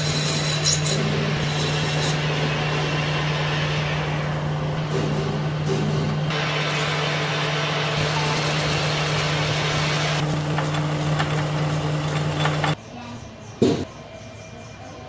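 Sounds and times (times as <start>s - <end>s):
lathe motor hum: 1.1s - 12.8s.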